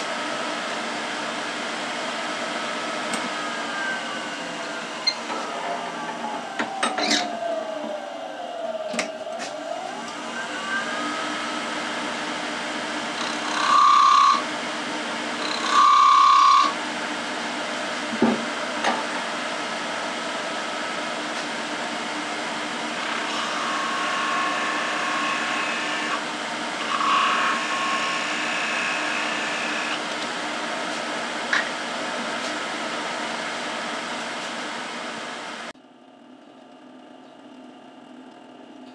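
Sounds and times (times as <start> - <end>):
whine sliding in pitch: 2.3 - 12.3
loud high squeals: 3.3 - 8.2
wood lathe running: 13.0 - 14.4, 15.3 - 16.8, 22.9 - 30.1.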